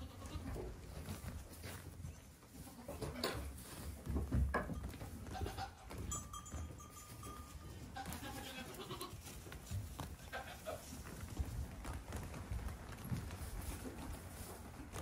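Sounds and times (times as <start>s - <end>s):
goat kids bleating: 0.0s - 0.7s, 2.5s - 3.5s, 5.2s - 6.3s, 7.8s - 9.4s, 10.0s - 11.0s
hooves thumping on floor: 0.1s - 15.0s.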